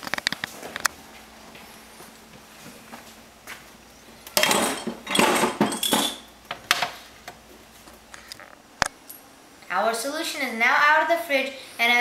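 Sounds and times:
glass and plastic containers clinking: 4.4s - 6.3s.

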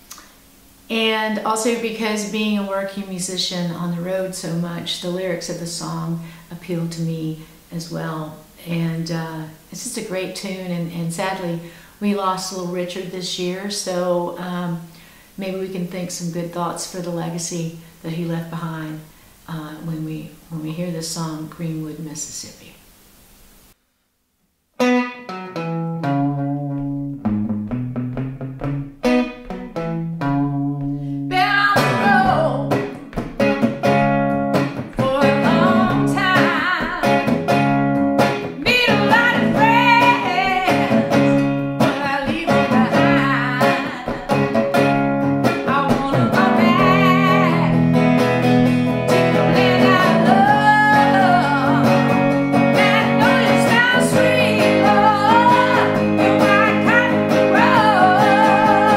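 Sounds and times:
electric guitar blues riff: 24.8s - 58.9s
woman singing: 31.3s - 32.9s, 34.8s - 37.3s, 38.6s - 44.6s, 45.4s - 48.0s, 49.3s - 58.9s.

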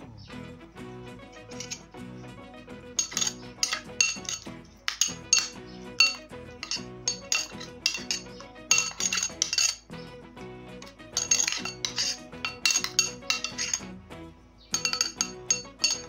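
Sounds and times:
background music: 0.0s - 16.0s
metal spoon scraping glass bowl: 1.4s - 1.9s, 3.0s - 9.9s, 10.8s - 13.9s, 14.7s - 16.0s.

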